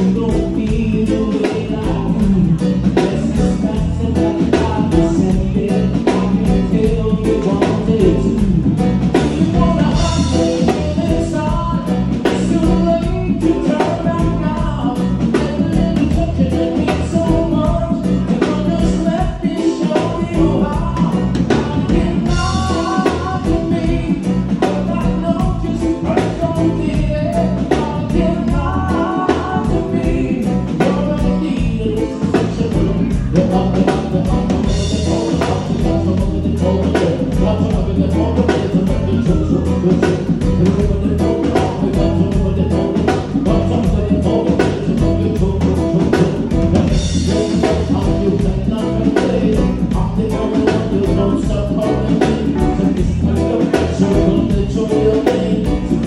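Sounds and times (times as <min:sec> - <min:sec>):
drum kit: 0:00.0 - 0:56.0
electric guitar: 0:00.0 - 0:56.0
keyboard: 0:00.0 - 0:56.0
man singing: 0:00.0 - 0:56.0.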